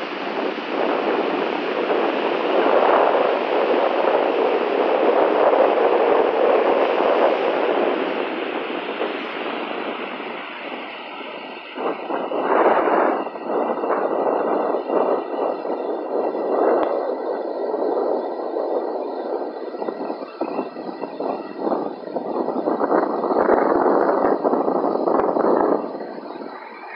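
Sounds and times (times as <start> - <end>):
gusty wind on microphone: 0.0 - 26.9.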